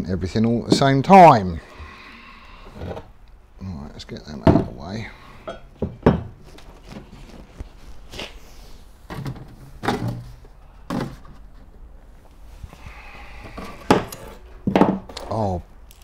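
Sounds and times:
knocks and thuds at workbench: 4.4 - 4.8, 5.8 - 6.4, 14.7 - 15.1.

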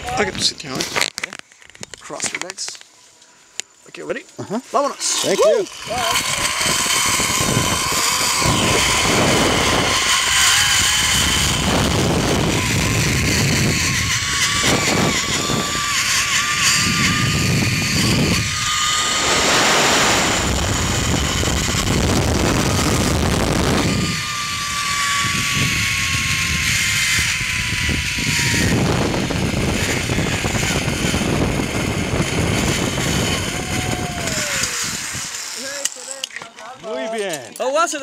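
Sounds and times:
zip-line pulleys whining on cable: 4.8 - 37.1
wind on microphone: 5.8 - 35.4.

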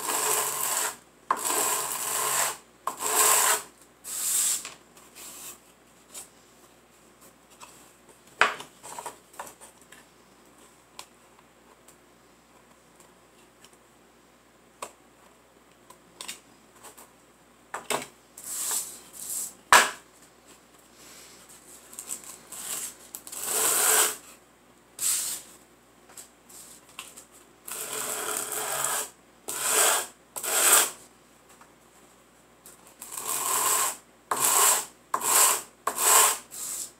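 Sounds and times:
wood sanding on sandpaper: 23.4 - 24.2, 33.3 - 36.9.

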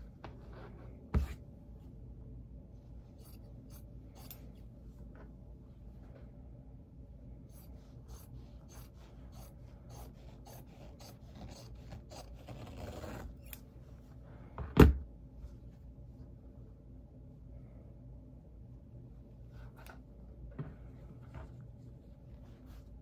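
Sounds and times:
scissors snipping fabric: 3.2 - 4.4, 7.5 - 13.7.

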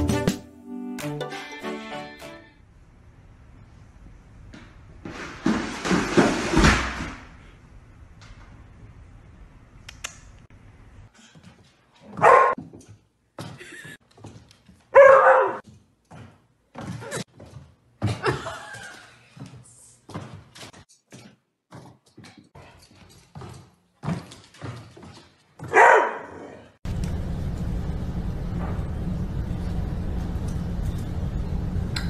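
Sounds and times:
laundry basket thudding down stairs: 5.0 - 7.4
dog barking: 12.1 - 12.6, 14.9 - 15.6, 25.6 - 26.6.

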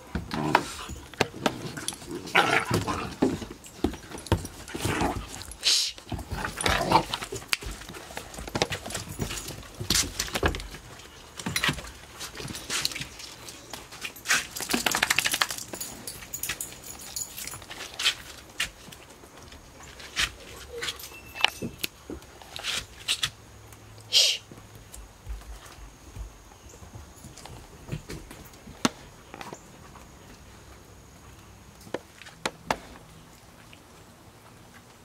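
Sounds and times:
paws clicking on wooden decking: 0.0 - 23.8
puppies scuffling: 0.0 - 23.9, 24.5 - 35.0.

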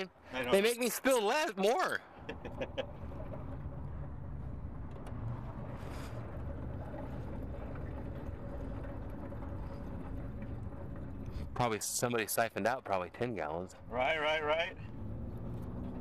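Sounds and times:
steady low rumble: 2.0 - 16.0
gasoline pouring into fuel filler: 2.3 - 13.4.

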